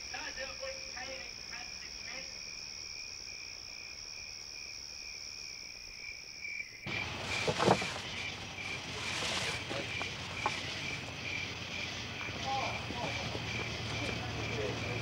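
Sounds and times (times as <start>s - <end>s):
insects trilling: 0.0s - 15.0s
pulsing insect chirp: 0.0s - 15.0s
cloth rustling: 6.9s - 11.2s
wood knocking: 6.9s - 11.2s.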